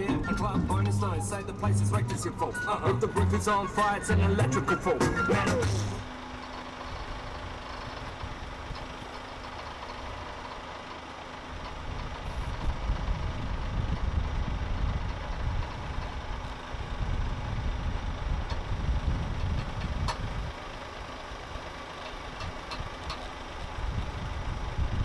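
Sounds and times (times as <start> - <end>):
low rumble: 0.0 - 6.2
truck engine running: 0.0 - 25.0.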